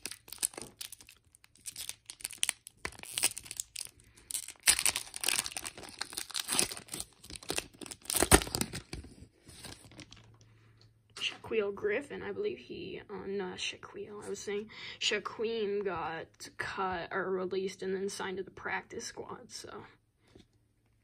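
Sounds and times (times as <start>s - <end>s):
foil wrapper tearing and crinkling: 0.0s - 10.3s.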